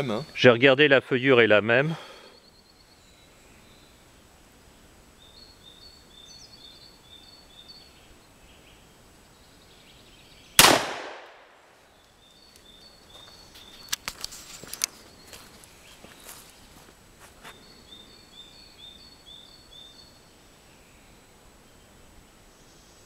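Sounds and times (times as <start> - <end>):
birds chirping: 0.0 - 10.7, 11.7 - 23.0
revolver gunshot: 10.6 - 11.6.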